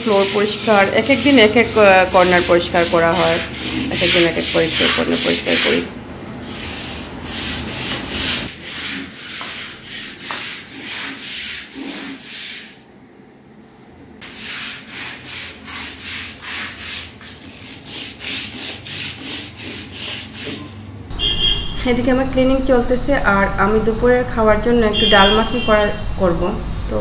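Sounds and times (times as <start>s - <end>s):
scrub brush scrubbing stone countertop: 0.0s - 5.9s, 6.5s - 12.8s, 14.2s - 20.7s.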